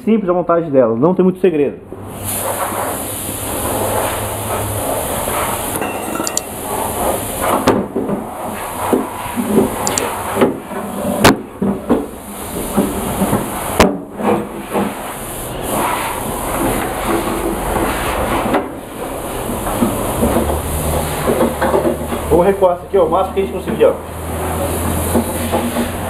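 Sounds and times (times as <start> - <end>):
steady hiss: 2.0 - 26.0
metal bars and chains clinking: 5.8 - 6.6
sharp metallic knocks: 5.8 - 6.6.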